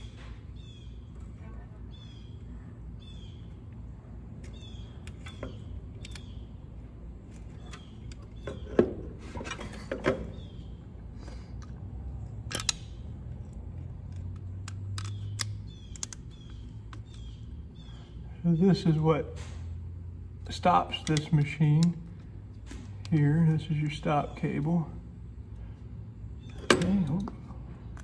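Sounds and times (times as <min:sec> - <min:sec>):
bird chirping: 0:00.0 - 0:03.7, 0:04.4 - 0:09.1, 0:10.2 - 0:11.0, 0:15.0 - 0:19.0
small metal clicks and knocks: 0:11.6 - 0:17.3.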